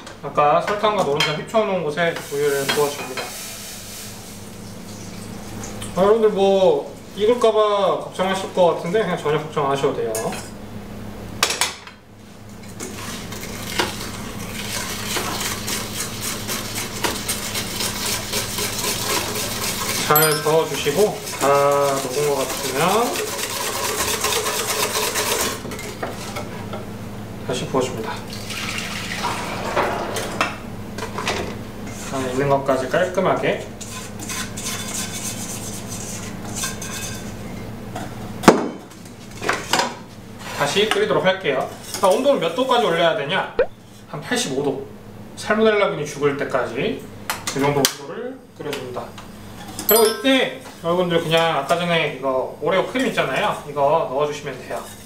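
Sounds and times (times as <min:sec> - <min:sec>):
spatula scraping metal bowl: 0:14.7 - 0:25.6, 0:33.8 - 0:37.3
low steady hum: 0:26.7 - 0:32.4.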